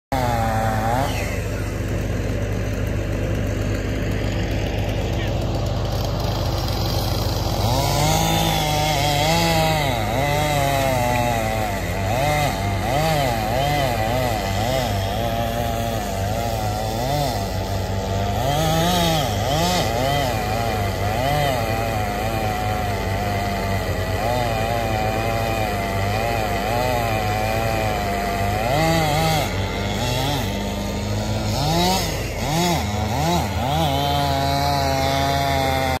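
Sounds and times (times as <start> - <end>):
chainsaw cutting wood: 0.1 - 36.0.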